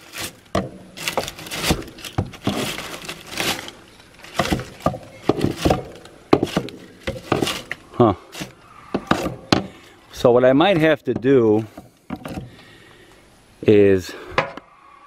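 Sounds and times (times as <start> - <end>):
dry leaves scraping and crackling: 0.0 - 11.6.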